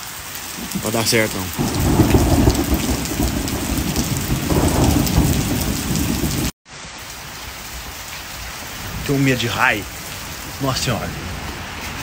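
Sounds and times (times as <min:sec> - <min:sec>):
heavy rain falling: 0:00.0 - 0:12.0
loud rumble of thunder: 0:00.6 - 0:06.5.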